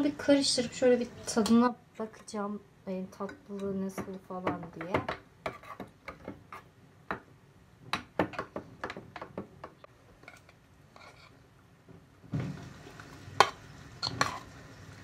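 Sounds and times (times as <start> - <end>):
metal spoon scraping a pot: 5.4 - 6.7, 10.2 - 11.4, 14.0 - 14.5.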